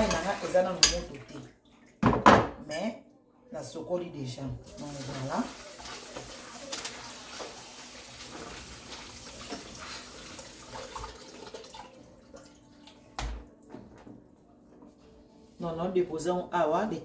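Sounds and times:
food rinsed by hand: 0.0 - 2.2, 4.7 - 13.6
tap water running into sink: 4.7 - 13.4.

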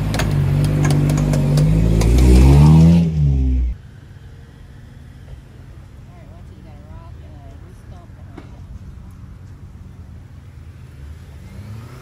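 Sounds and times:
engine revving hard: 0.0 - 3.7, 11.4 - 12.0.

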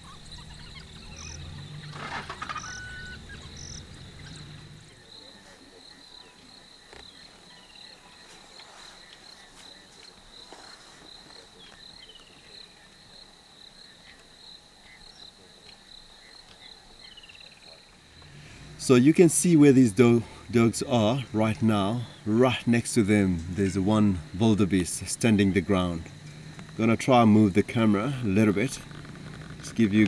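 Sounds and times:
insects chirping trill: 0.0 - 30.0
rustling: 1.4 - 4.8.

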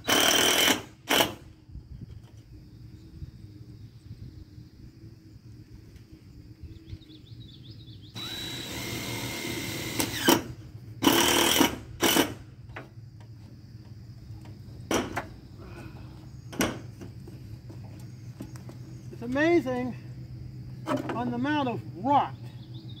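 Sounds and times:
power drill driving screws into metal: 0.0 - 1.4, 8.2 - 12.4.

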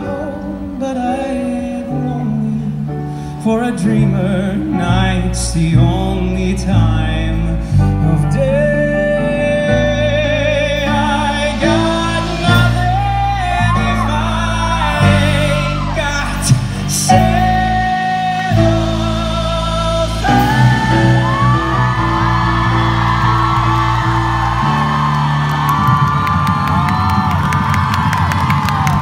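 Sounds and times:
live band guitar and bass: 0.0 - 29.0
crowd whooping and cheering: 11.4 - 19.0, 20.2 - 29.0.

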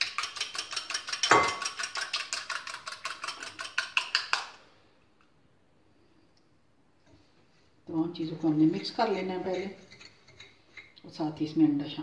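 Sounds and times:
whisk clicking against bowl: 0.0 - 4.6.

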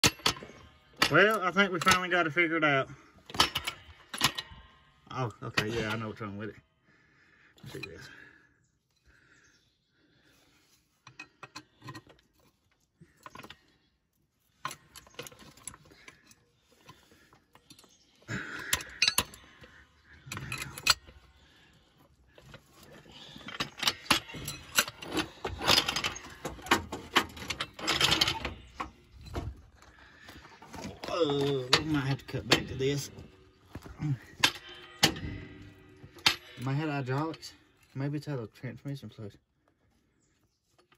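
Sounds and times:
floor jack clanking and rattling: 23.1 - 36.6.

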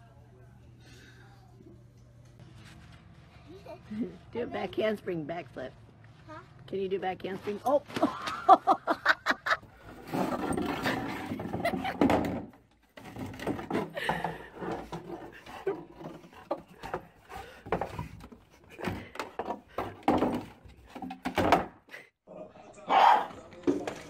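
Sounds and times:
plastic shovel thunking and scraping: 9.9 - 21.8.

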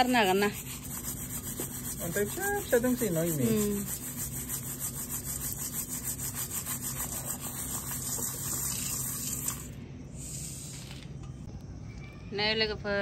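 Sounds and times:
rhythmic scraping: 0.0 - 9.4.

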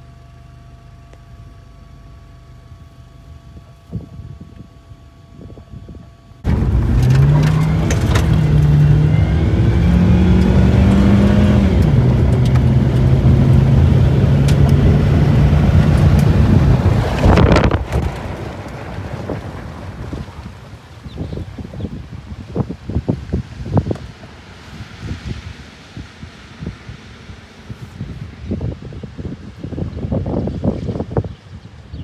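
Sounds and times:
road and wind noise: 2.7 - 32.0
car engine accelerating: 6.4 - 20.6.

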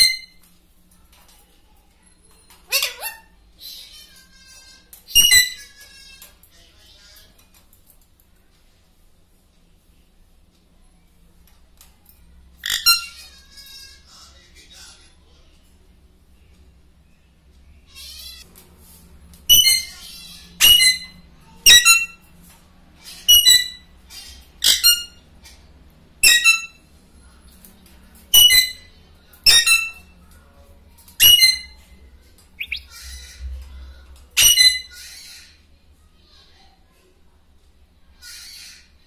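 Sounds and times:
parakeet calling: 2.7 - 5.8, 12.6 - 14.0, 19.5 - 22.2, 23.1 - 25.2, 26.2 - 26.8, 28.3 - 30.0, 31.2 - 31.8, 32.6 - 33.5.

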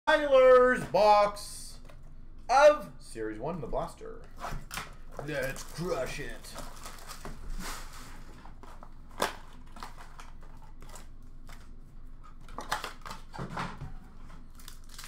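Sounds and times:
cardboard and foil wrappers crinkling: 5.1 - 13.4, 14.4 - 15.0.

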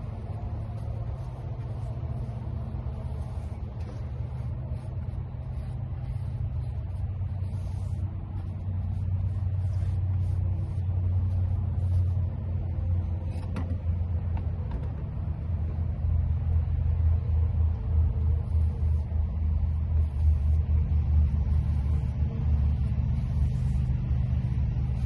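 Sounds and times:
steady low rumble: 0.0 - 25.0.

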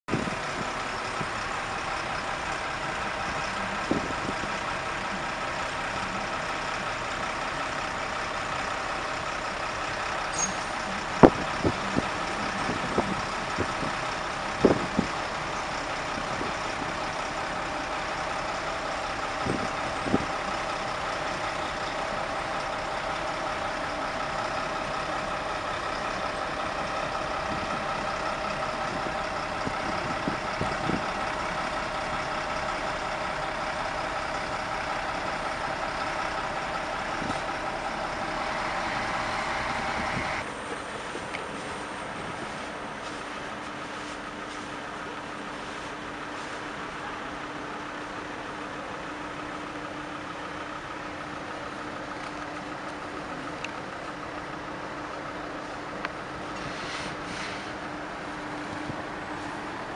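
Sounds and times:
hum of idling traffic: 0.0 - 59.9.

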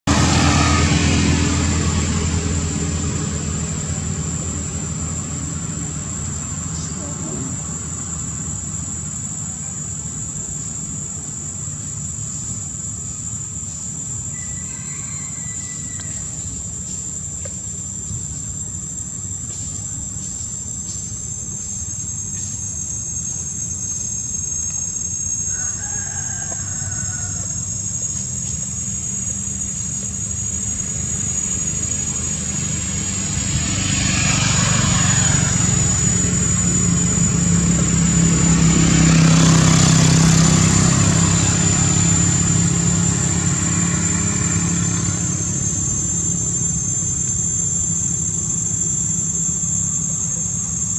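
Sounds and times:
vehicle engine rumbling: 0.0 - 50.9
high-pitched insect drone: 0.1 - 50.9.

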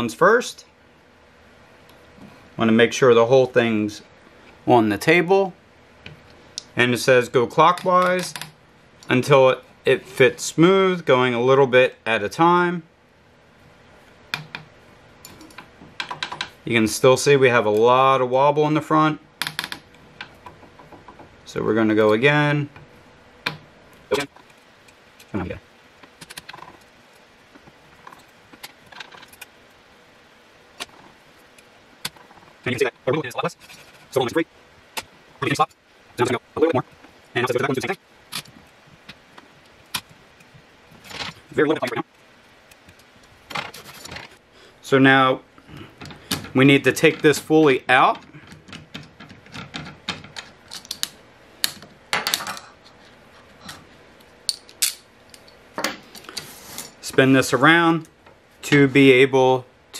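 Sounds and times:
metal parts rattling: 28.0 - 29.5, 45.9 - 52.8.

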